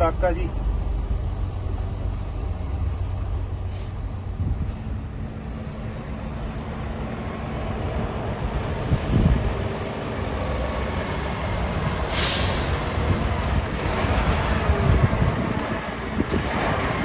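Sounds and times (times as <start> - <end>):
truck diesel engine rumbling: 0.0 - 17.0
short air hiss: 3.7 - 4.0, 12.1 - 13.0.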